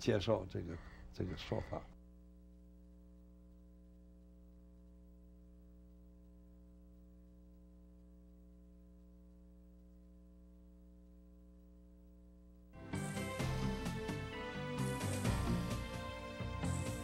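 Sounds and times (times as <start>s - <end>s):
faint low hum: 0.0s - 12.8s.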